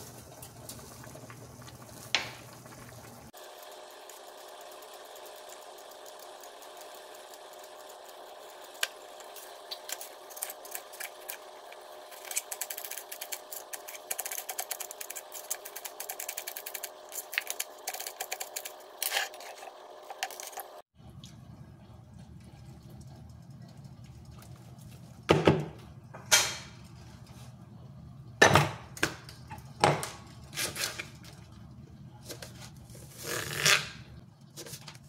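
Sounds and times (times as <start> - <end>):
knife peeling apple: 9.4 - 20.8.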